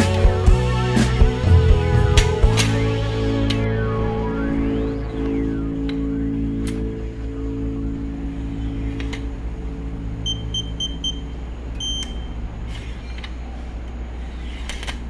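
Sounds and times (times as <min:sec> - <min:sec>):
keypad lock beeping: 0:10.2 - 0:11.2, 0:11.8 - 0:12.3.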